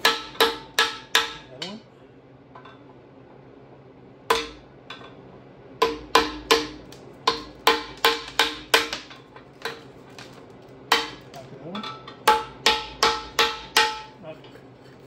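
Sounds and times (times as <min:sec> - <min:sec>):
hammer striking metal: 0:00.0 - 0:01.8, 0:04.3 - 0:05.2, 0:05.8 - 0:10.3, 0:10.9 - 0:14.2.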